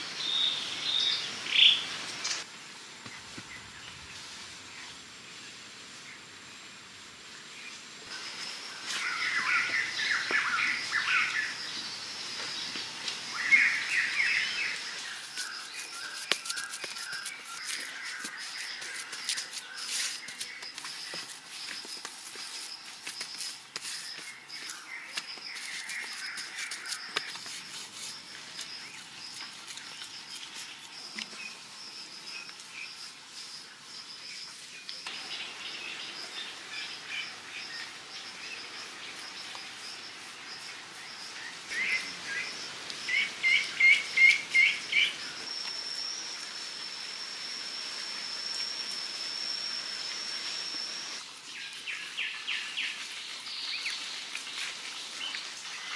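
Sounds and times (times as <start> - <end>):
high insect drone: 8.1 - 53.0
birds chirping: 8.2 - 33.0.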